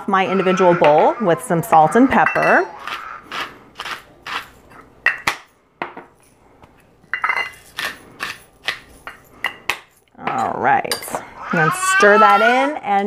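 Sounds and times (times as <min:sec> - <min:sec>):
salt and pepper grinders grinding: 0:00.2 - 0:04.8, 0:07.4 - 0:09.7.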